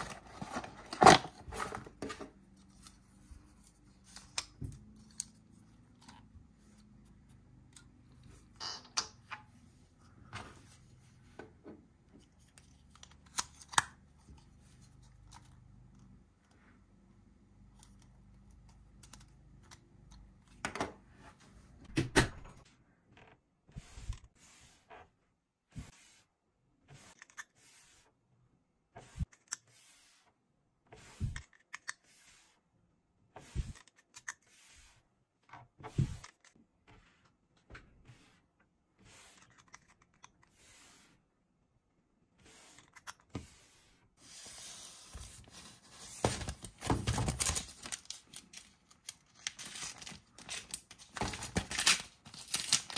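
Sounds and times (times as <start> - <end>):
plastic package crinkling: 47.2 - 52.9.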